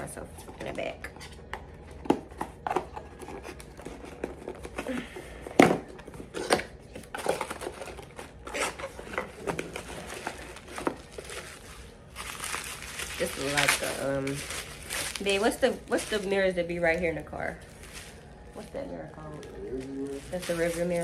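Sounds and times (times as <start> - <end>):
packaging crinkling: 6.3 - 21.0.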